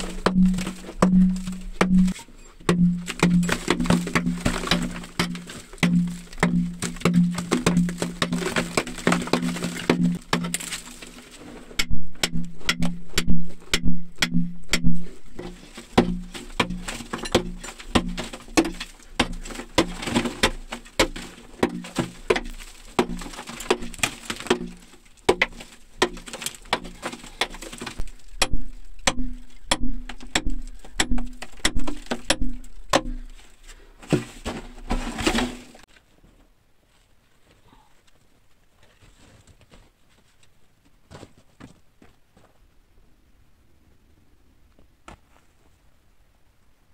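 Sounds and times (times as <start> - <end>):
hammer striking steel chisel on rock: 0.0 - 10.7, 11.8 - 27.5, 28.4 - 33.3.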